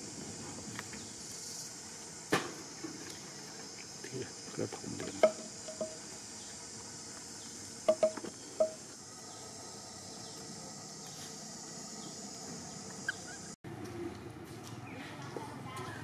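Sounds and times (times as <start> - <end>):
insects chirring: 0.0 - 13.6.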